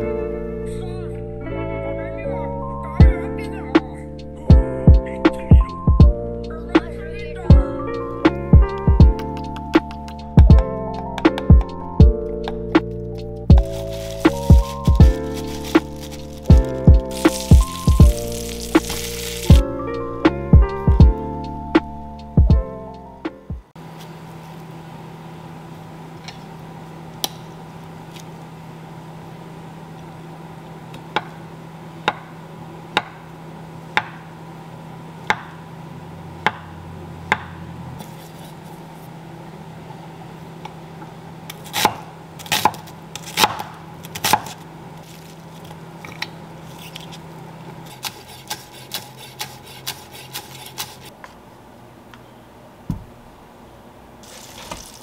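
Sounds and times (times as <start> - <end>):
steady hum: 0.0 - 55.0.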